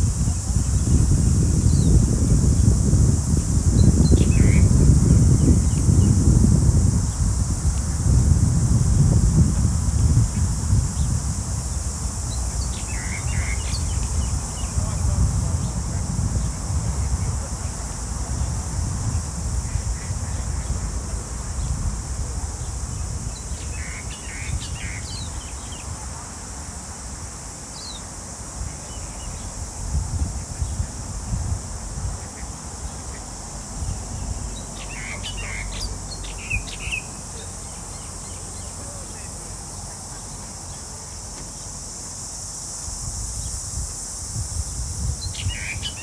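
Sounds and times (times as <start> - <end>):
high-pitched insect buzz: 0.0 - 46.0
wind rumbling on microphone: 0.0 - 46.0
bird chirps: 34.6 - 38.7, 45.2 - 46.0.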